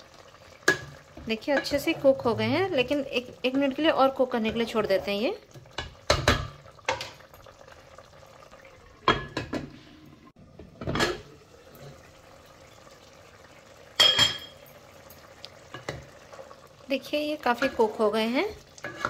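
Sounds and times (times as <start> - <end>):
pot simmering: 0.0 - 19.0
glass lid clinking against pot: 14.0 - 14.7.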